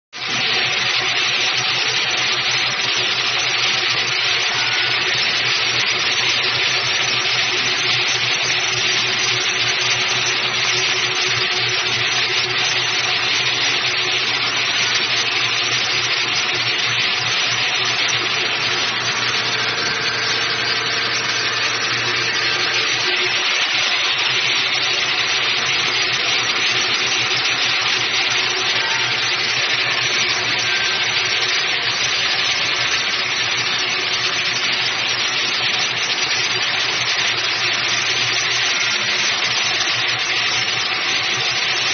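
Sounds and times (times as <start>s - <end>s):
low motor hum: 8.6s - 32.6s.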